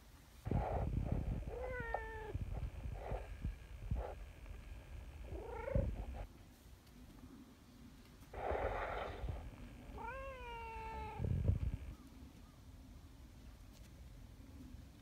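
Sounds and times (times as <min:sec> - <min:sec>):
cat purring: 0:00.5 - 0:06.3
cat meowing: 0:01.5 - 0:02.4, 0:05.3 - 0:06.0, 0:09.9 - 0:11.3.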